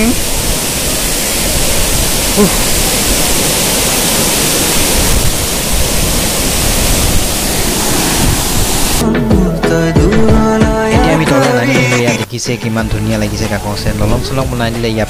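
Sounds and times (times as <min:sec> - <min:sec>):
wind on microphone: 0:00.0 - 0:09.0
waterfall rushing: 0:00.0 - 0:09.1.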